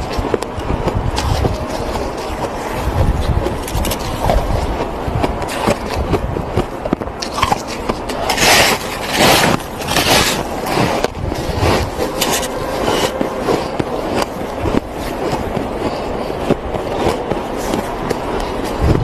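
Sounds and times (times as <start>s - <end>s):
crunching snow chewing: 0.0s - 19.0s.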